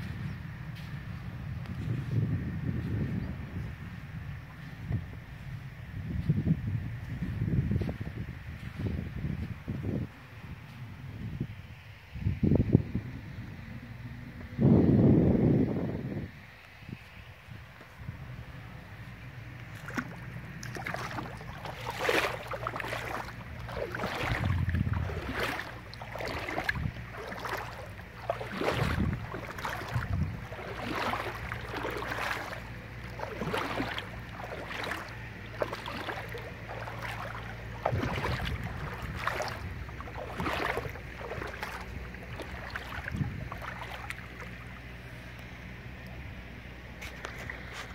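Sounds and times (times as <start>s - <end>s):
footsteps splashing in water: 19.0s - 46.1s, 47.0s - 47.9s.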